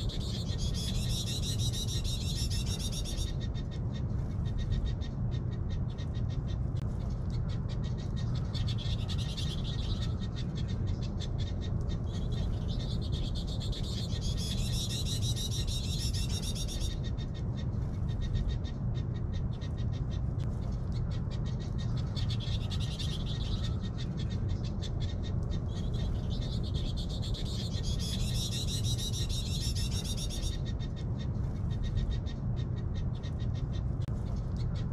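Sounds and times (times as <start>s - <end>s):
small birds trilling: 0.0s - 34.9s
steady low rumble: 0.0s - 34.9s.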